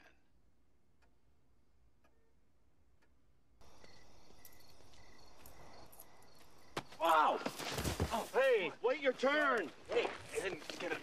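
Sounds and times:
crickets chirping: 3.6 - 8.8.

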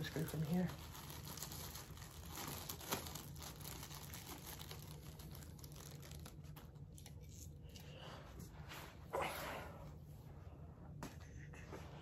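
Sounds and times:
plastic bag crinkling: 0.0 - 7.6.

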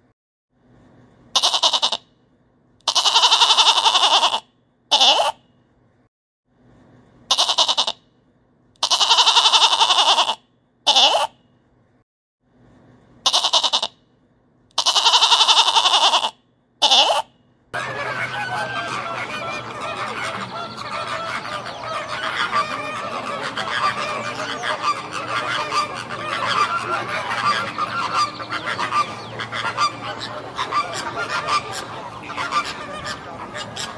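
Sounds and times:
sheep bleating: 1.4 - 2.0, 2.9 - 5.4, 7.3 - 8.0, 8.8 - 11.3, 13.2 - 13.9, 14.8 - 17.2
flamingos honking and chattering: 17.8 - 33.9.

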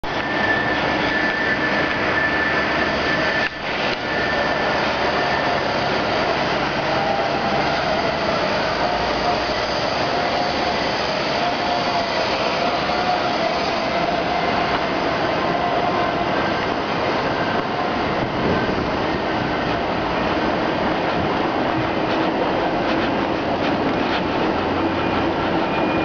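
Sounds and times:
tyres rolling on asphalt: 0.0 - 26.0
faint wavering whine: 0.1 - 20.9
wind over microphone: 14.7 - 26.0.

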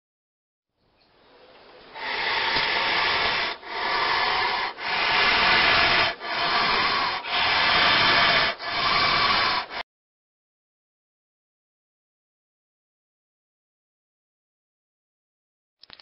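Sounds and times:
snake rasping hiss: 1.9 - 9.8.

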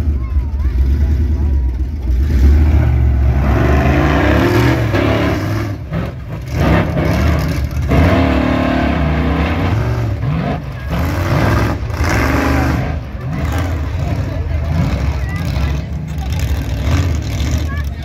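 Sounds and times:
monster truck engine revving: 0.0 - 18.0.

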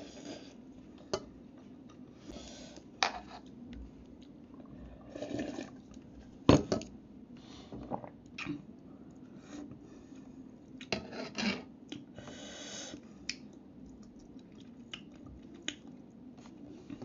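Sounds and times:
person chewing noodles: 13.2 - 16.2.

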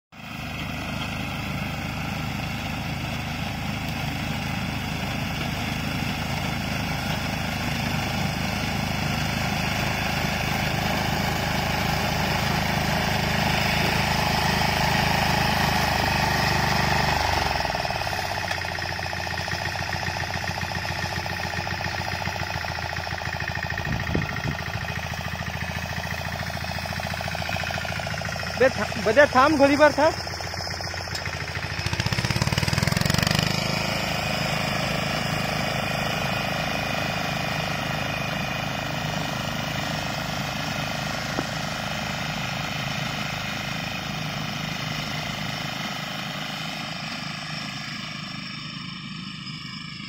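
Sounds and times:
small engine running: 0.2 - 50.0.

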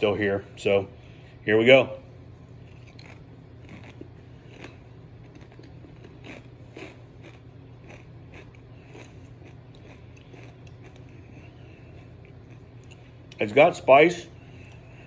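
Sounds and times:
man chewing crunchy chip: 2.6 - 13.4.

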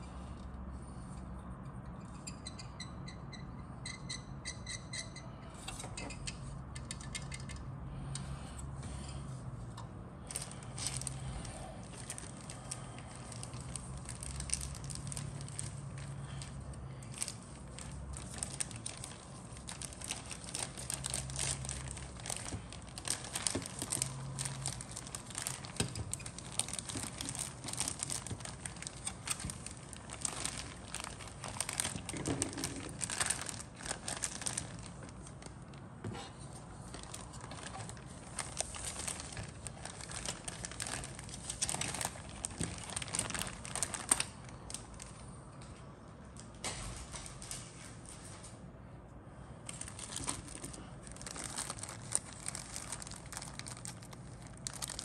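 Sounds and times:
steady low hum: 0.0 - 55.0
small crackles: 10.2 - 35.9, 36.6 - 45.4, 49.7 - 55.0
plastic bag crinkling: 10.2 - 45.3, 49.7 - 55.0.

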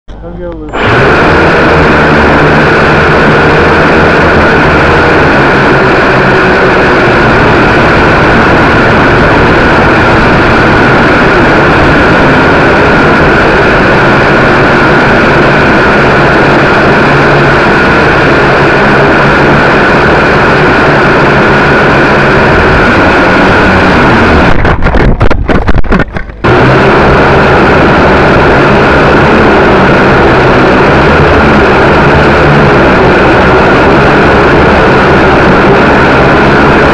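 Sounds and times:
quadcopter motors whining: 0.1 - 36.9.

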